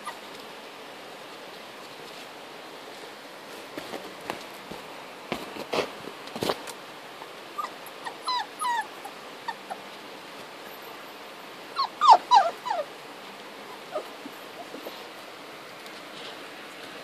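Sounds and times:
puppy whimpering and yipping: 0:07.2 - 0:09.8, 0:11.8 - 0:12.9, 0:13.7 - 0:15.1.

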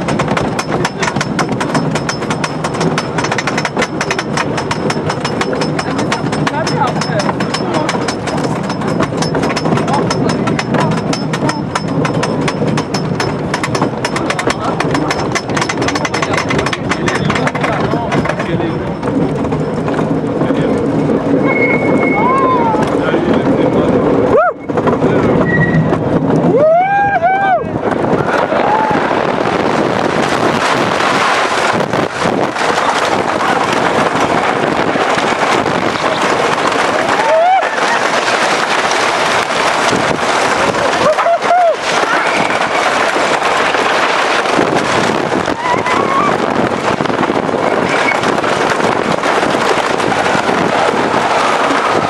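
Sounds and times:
lift chain ratchet clacking: 0:00.0 - 0:22.2
roller coaster wheels clattering: 0:00.0 - 0:52.0
train rumbling on wooden track: 0:00.0 - 0:52.0
wind rushing on microphone: 0:00.0 - 0:52.0.

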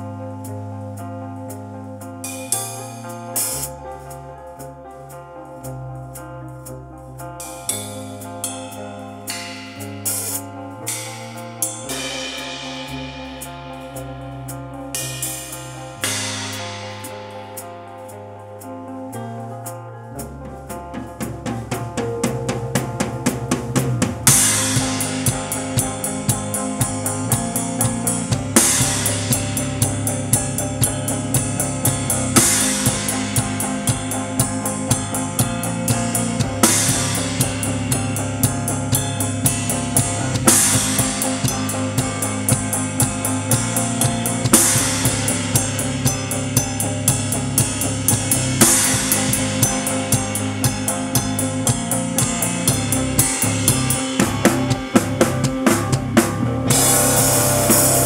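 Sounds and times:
sustained electric guitar: 0:00.0 - 0:58.0
rock drum kit: 0:02.2 - 0:03.8, 0:07.4 - 0:18.2, 0:20.4 - 0:58.0
crash cymbal: 0:07.4 - 0:18.4, 0:24.2 - 0:58.0.

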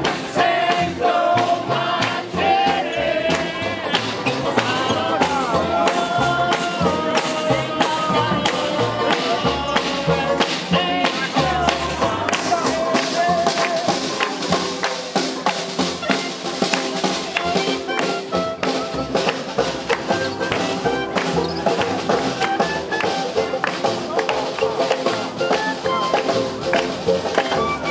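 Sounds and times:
snare drum: 0:00.0 - 0:27.9
swing jazz band playing: 0:00.0 - 0:27.9.

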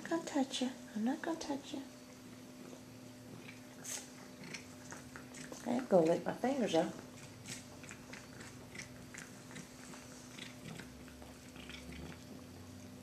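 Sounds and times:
steady low hum: 0:00.0 - 0:13.0
cat chewing: 0:02.2 - 0:05.7, 0:07.0 - 0:13.0.

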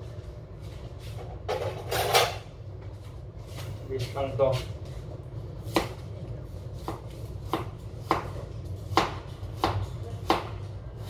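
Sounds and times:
knife chopping carrot on board: 0:06.8 - 0:10.6.

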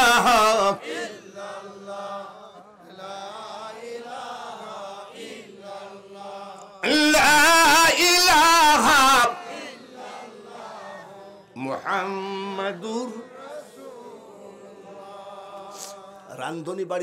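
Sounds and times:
man chanting through loudspeakers: 0:00.0 - 0:00.8, 0:06.8 - 0:09.4, 0:11.6 - 0:13.2
softer chanting voices: 0:00.0 - 0:16.6.

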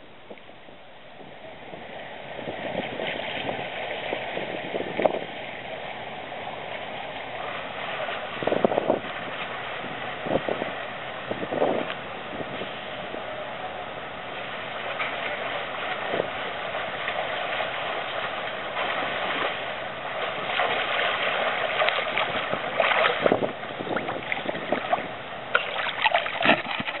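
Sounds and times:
water wash: 0:00.0 - 0:27.0
swimming strokes splashing: 0:14.2 - 0:27.0.

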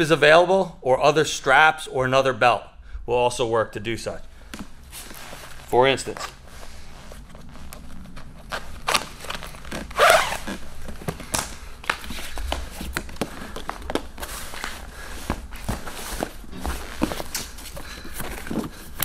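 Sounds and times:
fabric rustling: 0:04.4 - 0:19.0.

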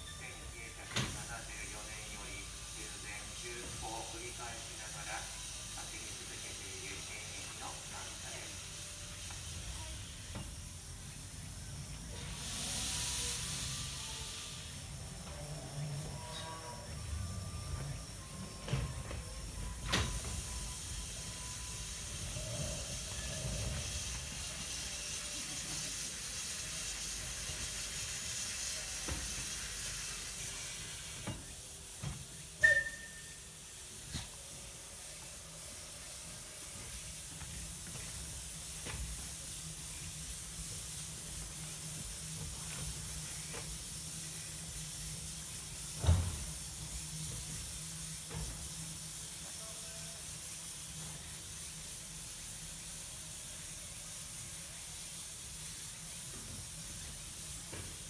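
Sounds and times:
steam hissing: 0:00.0 - 0:58.0
brief squeal: 0:32.6 - 0:33.4.

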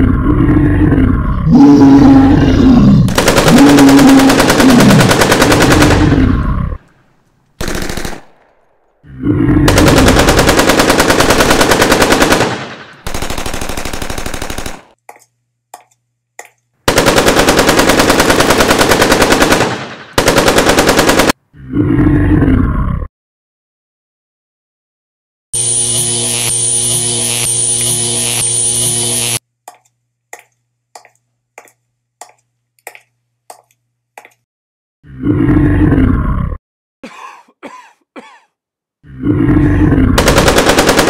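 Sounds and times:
wavering creature cry: 0:00.0 - 0:05.0
automatic gunfire: 0:03.1 - 0:06.2, 0:07.6 - 0:08.5, 0:09.7 - 0:15.0, 0:16.9 - 0:21.4, 0:40.2 - 0:41.0.

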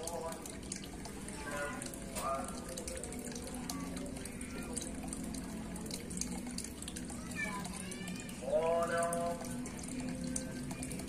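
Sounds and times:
water trickling and dripping: 0:00.0 - 0:11.0.

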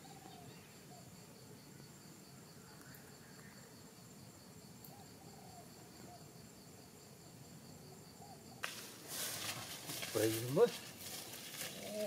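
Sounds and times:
soft insect chirps: 0:00.0 - 0:12.0
footsteps rustling through grass: 0:08.6 - 0:12.0.

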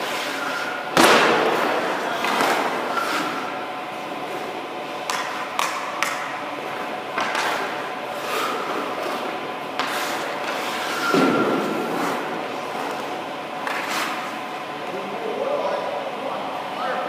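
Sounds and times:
skate blades scraping ice: 0:00.0 - 0:03.6, 0:05.1 - 0:14.6.

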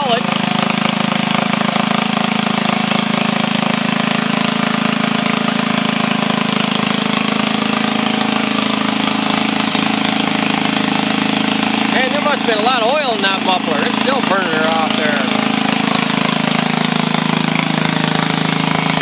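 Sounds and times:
lawnmower engine running: 0:00.0 - 0:19.0.

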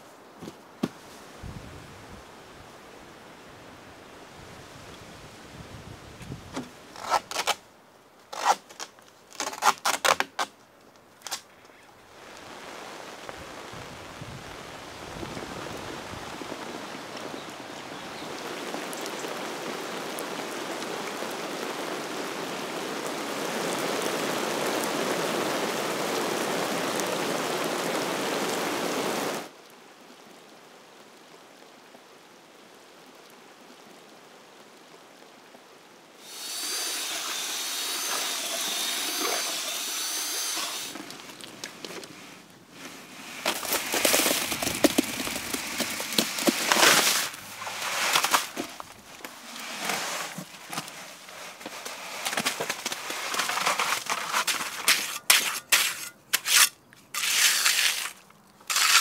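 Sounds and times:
water pouring into pond: 0:36.2 - 0:41.9.

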